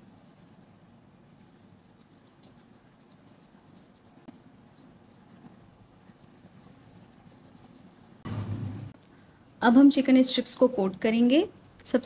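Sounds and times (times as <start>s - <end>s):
whisk scratching in flour: 0.0s - 0.6s, 1.3s - 8.2s.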